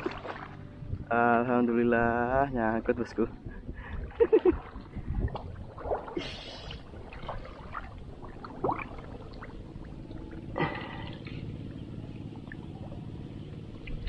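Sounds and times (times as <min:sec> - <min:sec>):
shallow water splashes: 0:00.0 - 0:00.8, 0:03.8 - 0:14.0.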